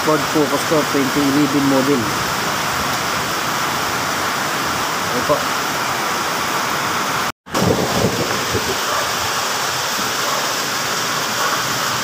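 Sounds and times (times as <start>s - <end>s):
steady rushing noise: 7.0s - 12.0s.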